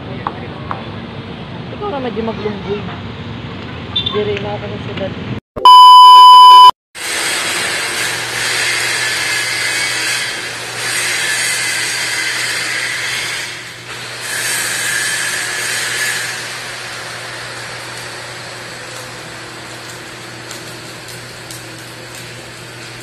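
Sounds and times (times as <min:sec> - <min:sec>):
welding arc crackling: 0:07.0 - 0:23.0.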